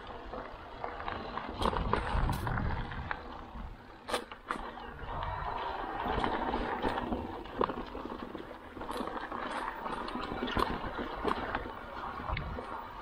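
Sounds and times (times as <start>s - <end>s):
bike knocking and rattling: 0.0s - 13.0s
bike tyres rushing over trail: 0.0s - 13.0s.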